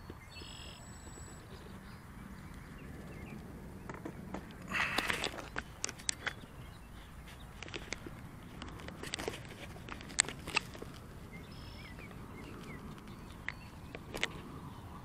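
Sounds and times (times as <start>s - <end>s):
faint bird chirps: 0.0s - 2.0s, 11.3s - 13.9s
outdoor background noise: 0.0s - 15.0s
sharp clicks and scuffs: 3.9s - 14.6s.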